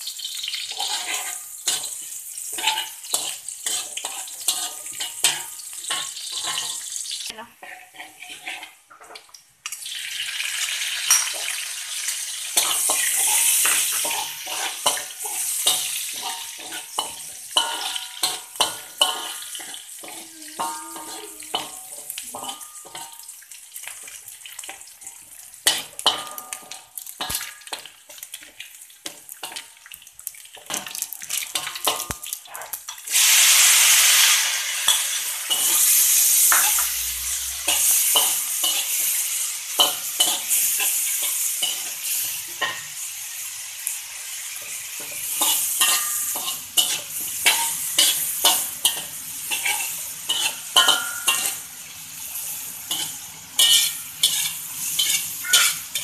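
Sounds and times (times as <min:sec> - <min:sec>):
food sizzling in hot oil: 0:00.0 - 0:56.0
metal spatula scraping a wok: 0:00.1 - 0:09.1, 0:12.3 - 0:23.3, 0:30.6 - 0:43.4, 0:44.3 - 0:56.0.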